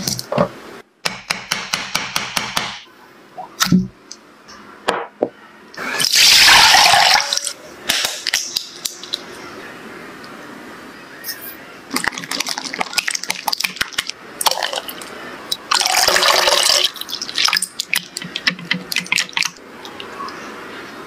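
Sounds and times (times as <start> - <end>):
coconut water pouring: 6.1 - 7.4, 15.7 - 19.6.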